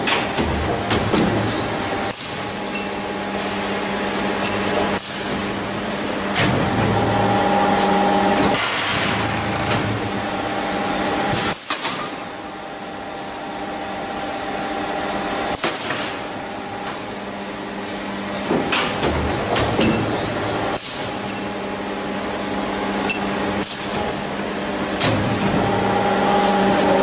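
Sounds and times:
machine hum with held tone: 0.0 - 27.0.

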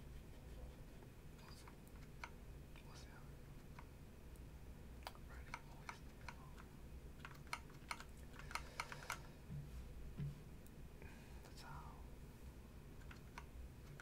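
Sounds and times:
computer keyboard clicks: 5.0 - 9.3, 13.0 - 14.0.

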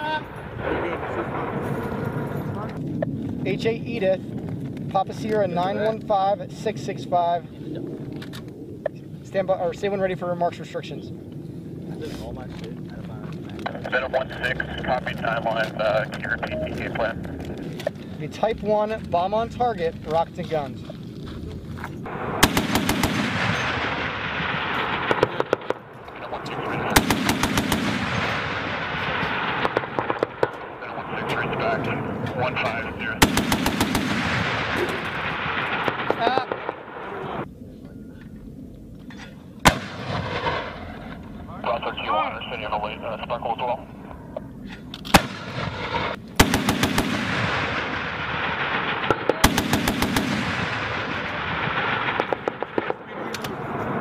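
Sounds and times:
rushing background noise: 0.0 - 54.0
gatling cannon fire bursts: 22.1 - 37.1, 39.6 - 41.1, 45.1 - 54.0
automatic gunfire bursts: 22.4 - 24.0, 27.0 - 28.5, 33.2 - 36.6, 45.2 - 47.9, 49.4 - 51.2.

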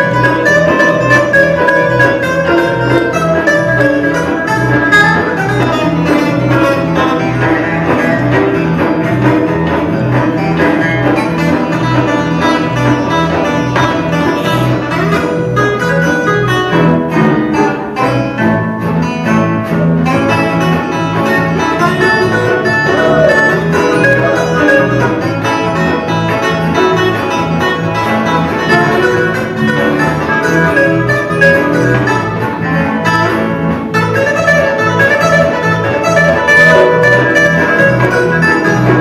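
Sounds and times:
electric bass: 0.0 - 39.0
fiddle: 0.0 - 39.0
strummed acoustic guitars: 0.0 - 39.0.

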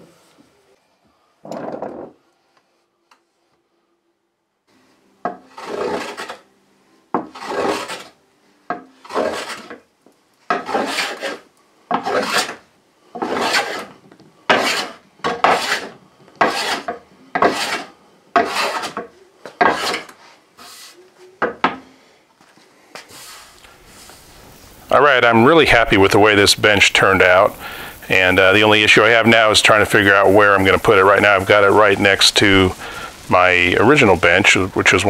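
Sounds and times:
bench plane shaving wood: 5.4 - 6.4, 7.2 - 8.2, 9.0 - 9.8, 10.5 - 19.0, 19.6 - 21.0.

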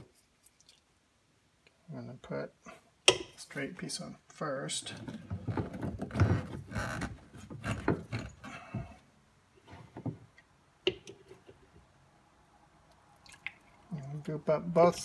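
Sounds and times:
plastic pipe clunks and scraping: 4.9 - 9.0, 9.6 - 11.8.

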